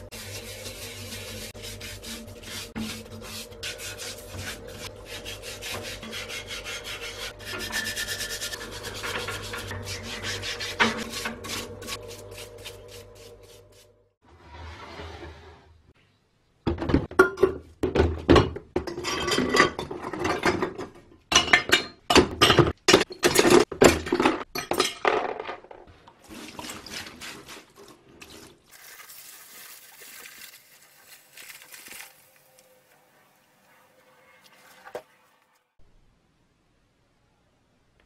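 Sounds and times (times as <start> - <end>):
metal parts clanking into tub: 16.7 - 25.8
liquid being poured: 27.8 - 32.5.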